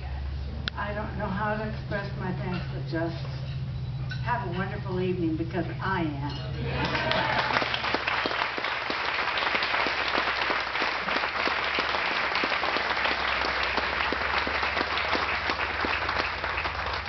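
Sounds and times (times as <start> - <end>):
crowd applauding: 6.7 - 17.0.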